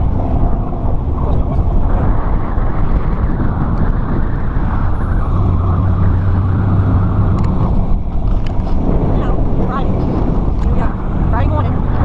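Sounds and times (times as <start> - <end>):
car engine and road noise: 0.0 - 12.0
low engine hum: 0.0 - 12.0.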